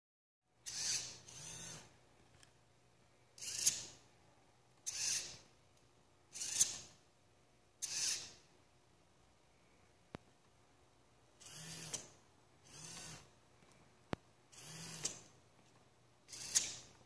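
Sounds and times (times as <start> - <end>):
servo motors whirring: 0.6 - 1.9, 3.4 - 4.0, 4.9 - 5.4, 6.3 - 6.9, 7.8 - 8.4, 11.4 - 13.3, 14.5 - 15.3, 16.3 - 16.9.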